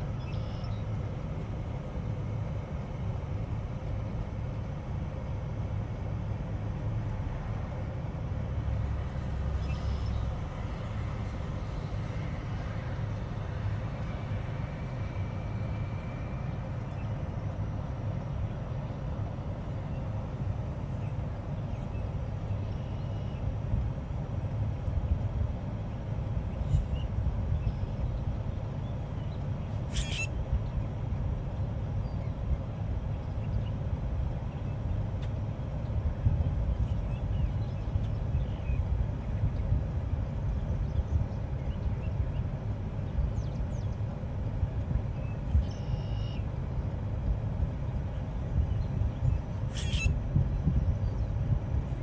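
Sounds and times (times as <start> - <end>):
low background rumble: 0.0 - 52.0
bird harsh squeaky call: 29.9 - 30.3, 49.7 - 50.1.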